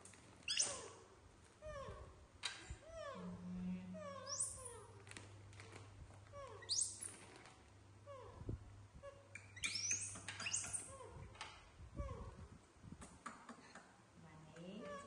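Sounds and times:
high-pitched monkey squeaks: 0:00.4 - 0:02.1, 0:04.0 - 0:04.9, 0:06.4 - 0:07.2, 0:09.0 - 0:11.2
baby monkeys cooing: 0:02.8 - 0:05.0.

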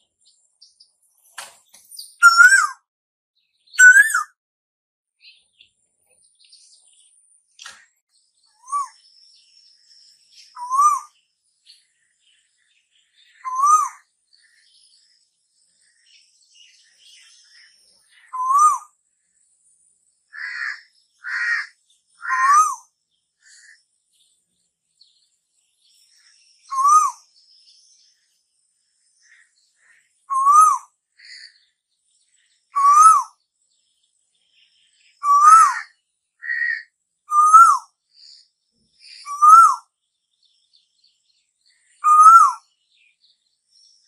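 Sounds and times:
bird calling: 0:01.9 - 0:02.8, 0:03.7 - 0:04.3, 0:10.4 - 0:11.2, 0:13.2 - 0:14.8, 0:17.1 - 0:18.9, 0:20.3 - 0:23.8, 0:26.6 - 0:27.3, 0:29.2 - 0:31.7, 0:32.7 - 0:33.4, 0:35.1 - 0:37.9, 0:39.0 - 0:39.9, 0:41.9 - 0:42.7
harsh high bird calls: 0:02.0 - 0:02.8, 0:03.7 - 0:04.3, 0:10.4 - 0:11.2, 0:13.3 - 0:14.1, 0:18.2 - 0:18.9, 0:20.3 - 0:23.8, 0:26.6 - 0:27.3, 0:29.9 - 0:31.6, 0:32.7 - 0:33.4, 0:35.1 - 0:37.9, 0:39.1 - 0:39.9, 0:41.9 - 0:42.7.

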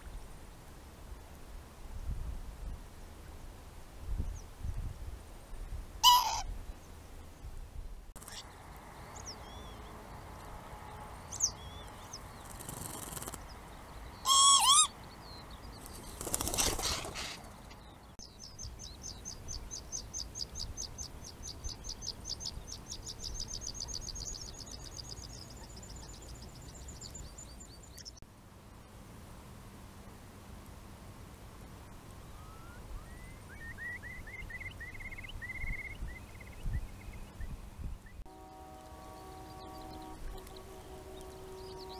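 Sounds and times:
lapwing wheezy calls: 0:06.0 - 0:06.5, 0:14.2 - 0:14.9
bird wingbeats: 0:12.4 - 0:13.6, 0:15.8 - 0:17.8.

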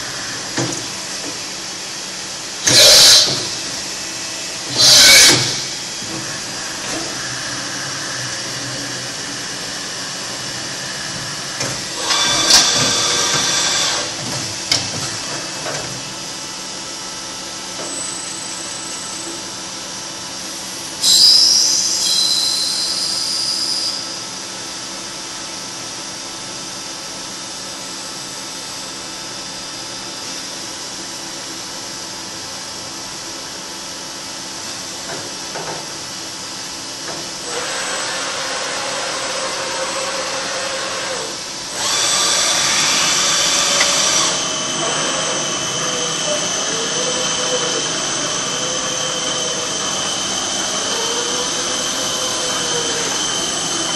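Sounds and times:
milling machine humming: 0:00.0 - 0:19.7, 0:37.0 - 0:53.9
rising whine: 0:42.5 - 0:53.9.

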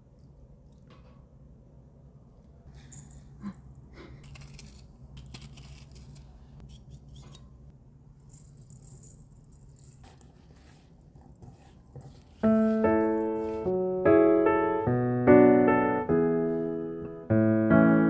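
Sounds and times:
piano music: 0:12.4 - 0:18.0.

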